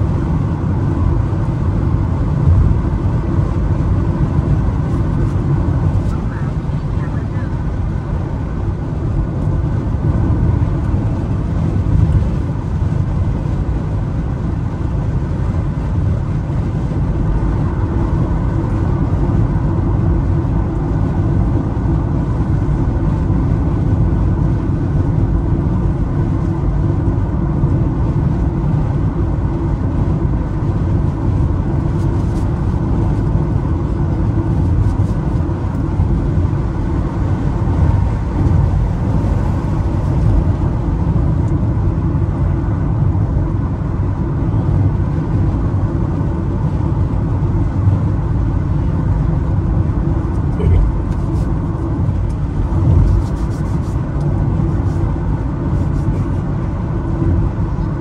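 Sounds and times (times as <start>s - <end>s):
vehicle rumble from inside: 0.0s - 58.0s.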